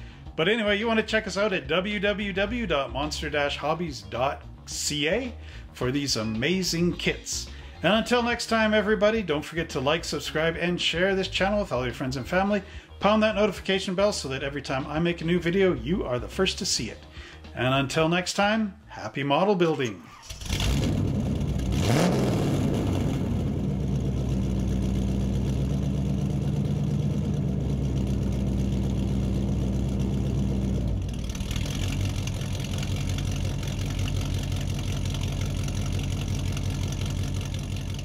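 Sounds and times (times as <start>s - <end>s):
car engine revving and idling: 20.2s - 38.0s.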